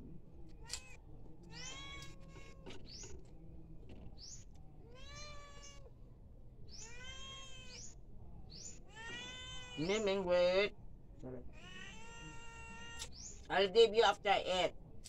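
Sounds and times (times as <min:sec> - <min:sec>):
cat meowing: 0:00.6 - 0:02.8, 0:04.8 - 0:05.9, 0:06.7 - 0:08.0, 0:08.8 - 0:10.2, 0:11.5 - 0:13.2.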